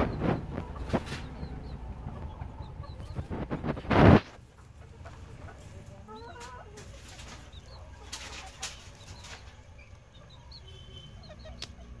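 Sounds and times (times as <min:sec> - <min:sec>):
sharp rustles: 0:00.0 - 0:01.4, 0:03.1 - 0:04.4, 0:06.4 - 0:09.6
chickens clucking: 0:00.0 - 0:12.0
chicks peeping: 0:00.0 - 0:12.0.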